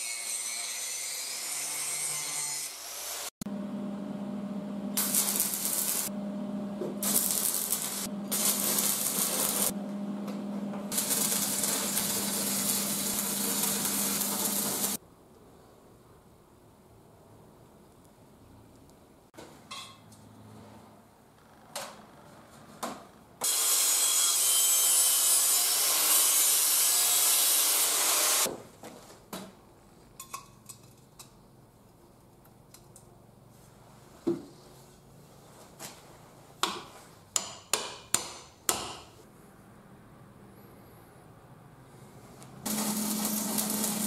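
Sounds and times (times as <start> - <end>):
steel grinding: 5.0 - 6.1, 7.0 - 9.8, 10.9 - 15.0, 42.7 - 44.0.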